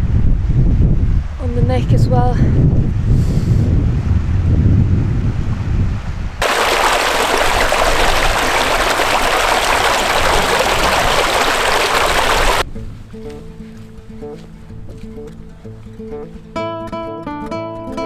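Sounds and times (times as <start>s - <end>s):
wind rumbling on microphone: 0.0s - 13.2s
stream rushing over rocks: 6.4s - 12.6s.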